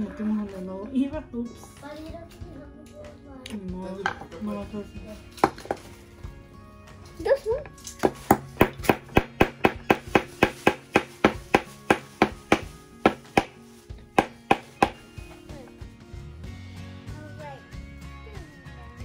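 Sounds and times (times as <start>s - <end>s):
hammer knocking on wood: 8.0s - 13.6s, 14.2s - 15.0s.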